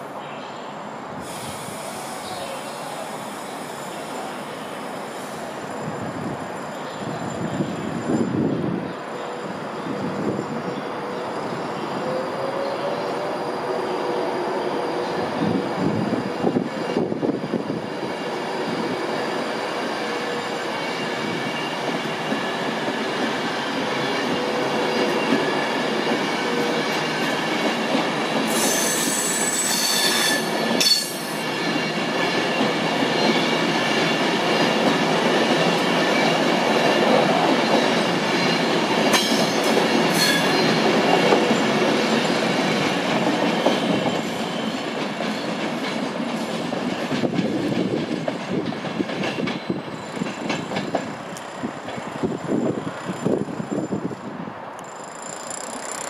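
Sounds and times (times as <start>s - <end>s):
high steady train tones: 0.0s - 56.0s
train wheels rumbling on rail: 1.1s - 56.0s
wheels squealing: 54.8s - 56.0s.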